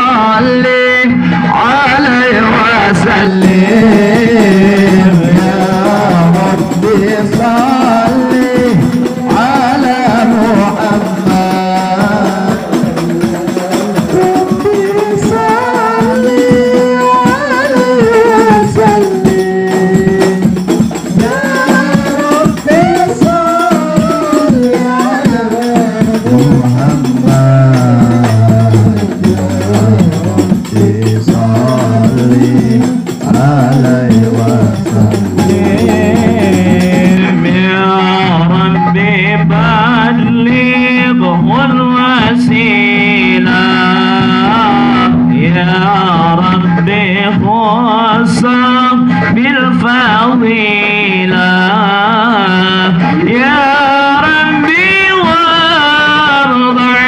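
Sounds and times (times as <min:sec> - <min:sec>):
frame drums playing rhythm: 0:02.1 - 0:57.0
person singing melismatic line: 0:21.2 - 0:37.5.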